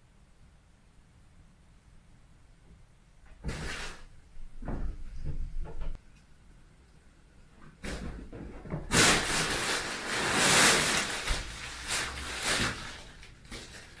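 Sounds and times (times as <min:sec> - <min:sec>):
fabric cat tunnel rustling: 0:08.9 - 0:14.0.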